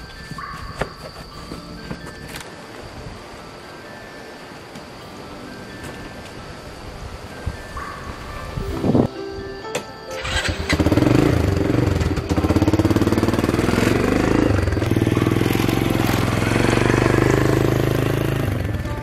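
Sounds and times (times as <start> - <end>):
small motorbike engine revving: 10.1 - 18.9.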